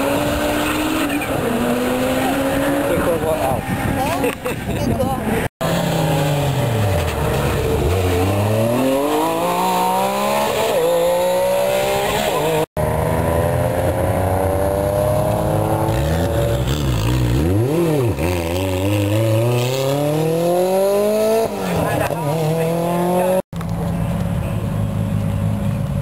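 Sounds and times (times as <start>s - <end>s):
rally car engine accelerating: 5.6s - 24.3s.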